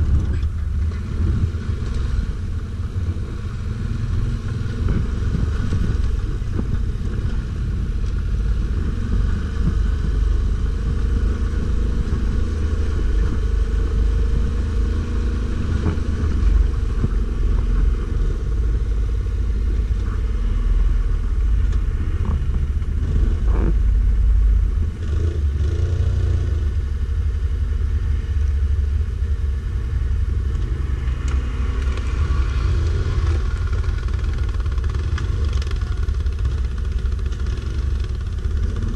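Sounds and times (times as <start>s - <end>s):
atv engine rumbling: 0.0s - 38.9s.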